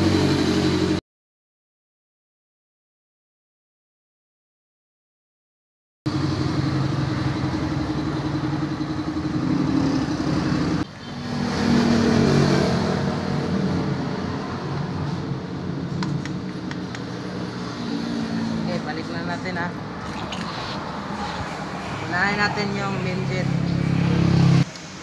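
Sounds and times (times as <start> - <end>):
vehicle engine running: 6.1 - 20.0.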